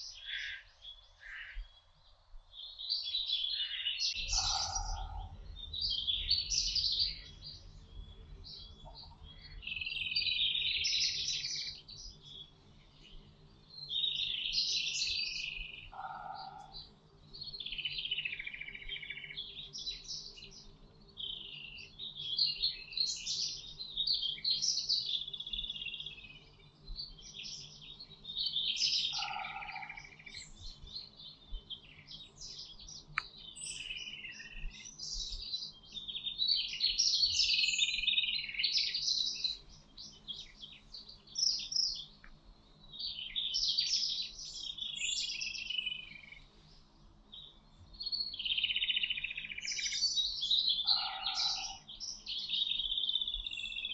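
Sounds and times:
songbirds singing in chorus: 0.0s - 53.9s
low-pitched bird call: 4.1s - 5.4s.

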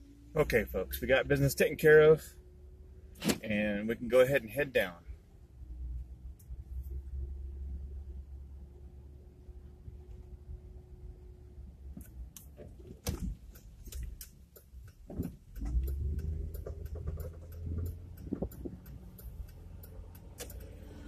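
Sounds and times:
sharp clicks: 12.0s - 20.9s
car engine accelerating: 13.2s - 21.0s.

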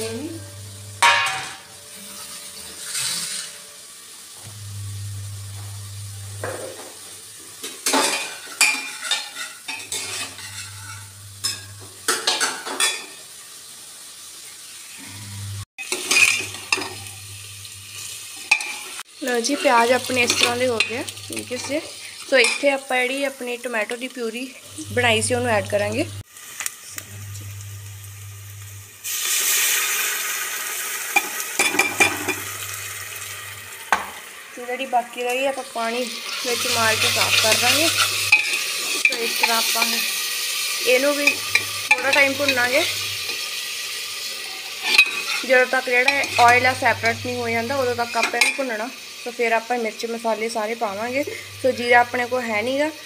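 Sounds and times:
onions sizzling in oil: 0.0s - 53.0s
metal ladle scraping pot: 0.4s - 3.7s, 8.0s - 13.0s, 15.8s - 17.2s, 18.0s - 22.6s, 36.2s - 40.0s, 41.1s - 43.4s, 44.7s - 48.6s.

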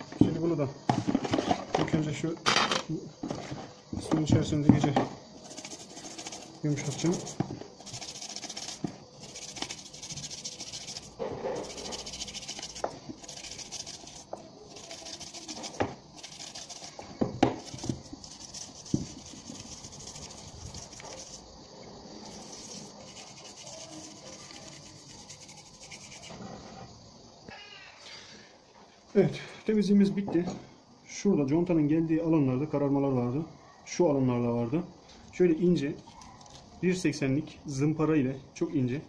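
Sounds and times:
toothbrush scrubbing: 5.4s - 21.6s, 22.2s - 26.4s
knocks against plastic bucket: 17.2s - 18.0s.

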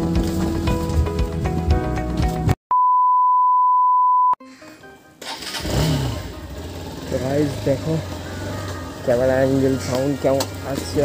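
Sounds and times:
background music: 0.0s - 2.6s, 4.4s - 11.0s
steady electronic beep: 2.7s - 4.4s
motorcycle engine: 5.2s - 11.0s.

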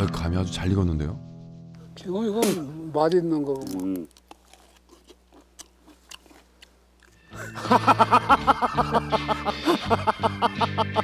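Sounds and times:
person chewing wet mouth sounds: 3.6s - 7.2s.

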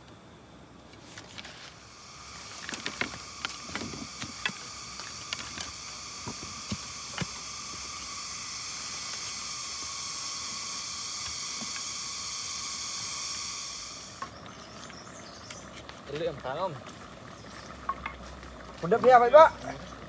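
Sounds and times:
high-pitched hissing drone: 1.4s - 15.4s.

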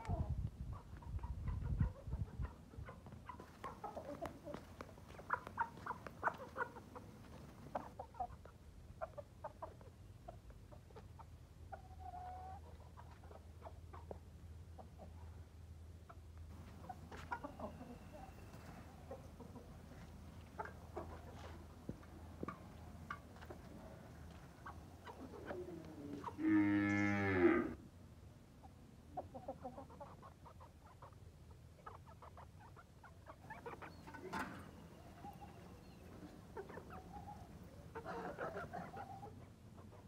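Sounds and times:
chickens clucking: 0.0s - 27.5s, 28.6s - 40.0s
cow mooing: 26.4s - 27.8s.

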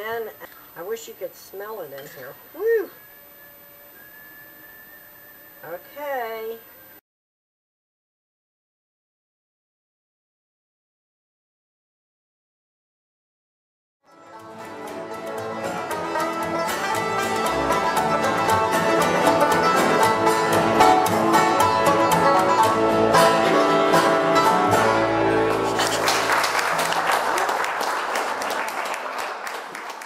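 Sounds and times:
bluegrass string band playing: 14.1s - 27.0s
applause: 25.6s - 30.0s.

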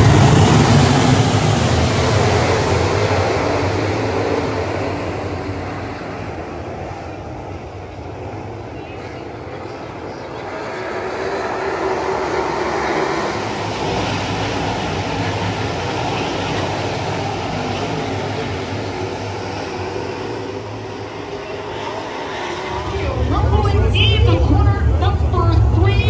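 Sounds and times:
race car engines: 0.0s - 26.0s.

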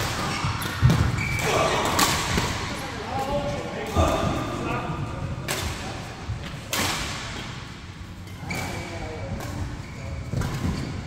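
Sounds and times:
rackets hitting shuttlecock: 0.0s - 2.7s.

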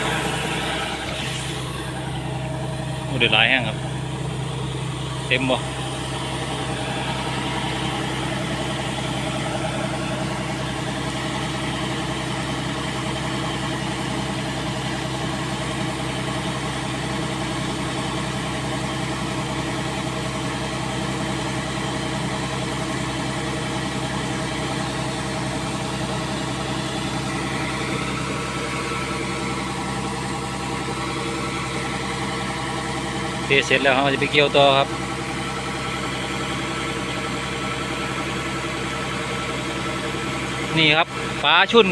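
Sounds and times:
auger whirring: 0.0s - 41.9s
combine harvester engine drone: 0.0s - 41.9s.

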